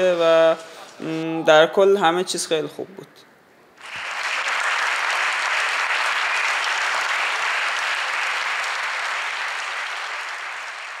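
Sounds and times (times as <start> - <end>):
crowd applause: 3.8 - 11.0.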